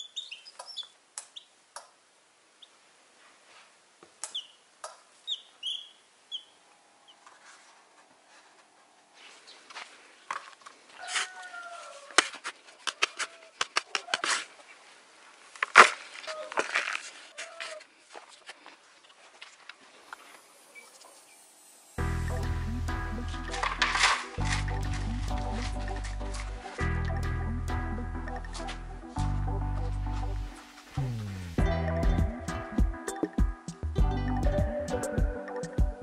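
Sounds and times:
chicks peeping: 5.2 - 7.2
shovel scraping dry soil: 9.2 - 14.8, 15.5 - 21.4, 23.2 - 26.8
chicken calling: 10.9 - 12.3.

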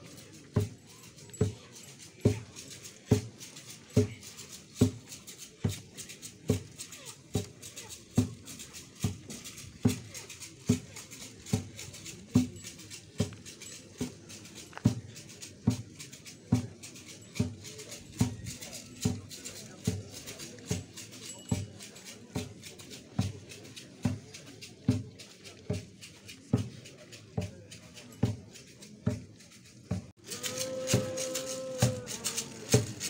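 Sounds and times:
rattles shaking: 0.0 - 33.0
drum beat: 2.2 - 20.0, 29.0 - 33.0.

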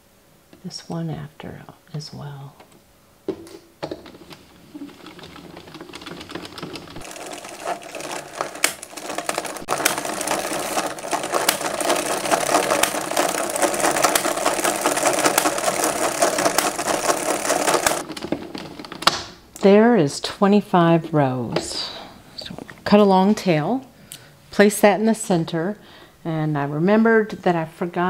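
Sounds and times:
knitting machine needles clattering: 3.8 - 19.3.

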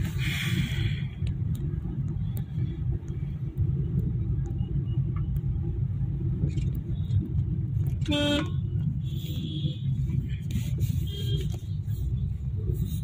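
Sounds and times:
road traffic rumble: 0.0 - 13.0
vehicle horn honking: 8.0 - 8.6
high horn toots: 8.0 - 8.7.

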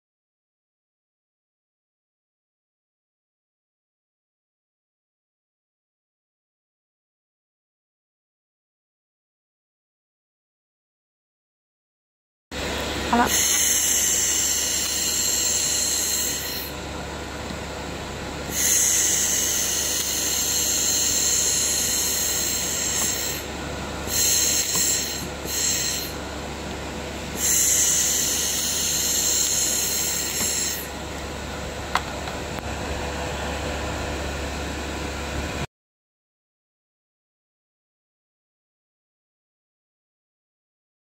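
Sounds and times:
steady machine hum: 12.6 - 35.7
laser cleaner hissing: 13.1 - 16.8, 18.4 - 26.2, 27.3 - 31.0.

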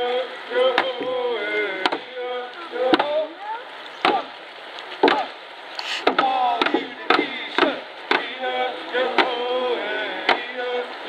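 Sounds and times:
people's voices: 0.0 - 11.0
sharp knocks: 5.0 - 5.2.

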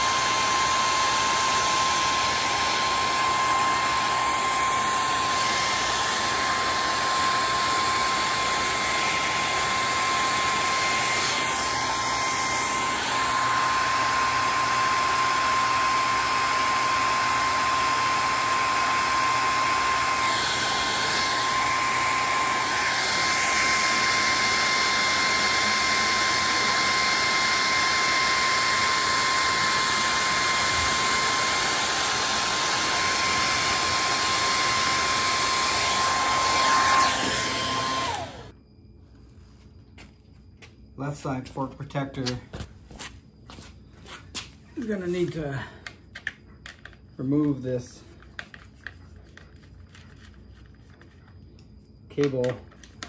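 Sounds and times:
heat gun running: 0.0 - 38.5.

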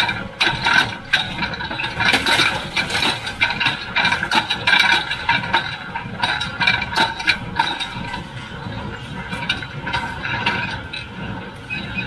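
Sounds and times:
baler rattling and clanking: 0.0 - 12.0
steady mechanical drone: 0.0 - 12.0.

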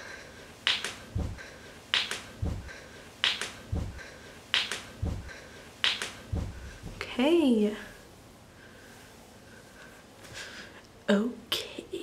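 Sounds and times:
finger snaps: 0.6 - 1.0, 1.9 - 2.3, 3.2 - 3.6, 4.5 - 4.9, 5.8 - 6.2
low thump: 2.4 - 2.7, 5.0 - 5.3, 6.3 - 7.0.

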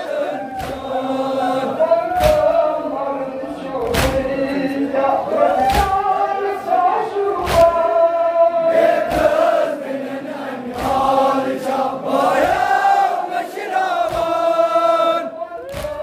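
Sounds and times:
men chanting in unison: 0.0 - 16.0
chest slaps: 2.2 - 2.6, 3.8 - 4.3, 5.6 - 6.0, 7.4 - 7.8.

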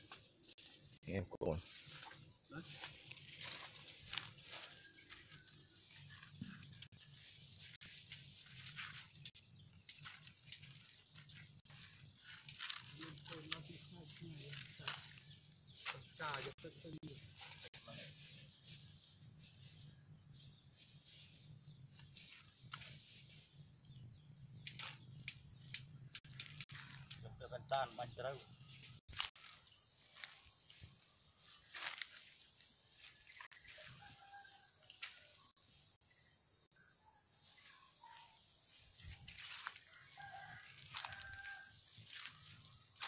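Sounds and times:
faint outdoor ambience: 0.0 - 43.0
footsteps on dry leaves: 1.6 - 20.1, 26.3 - 27.1, 28.7 - 35.5, 38.9 - 43.0.

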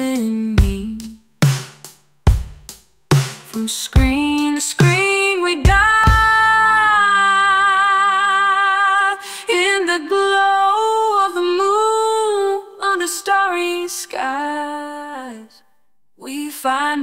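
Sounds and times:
woman singing long notes: 3.6 - 15.5.

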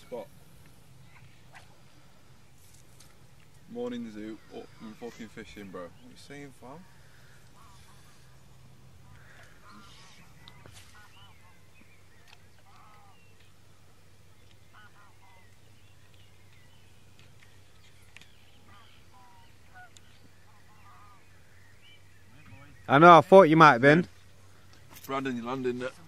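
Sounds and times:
geese honking faintly: 3.6 - 16.2, 18.5 - 26.0.

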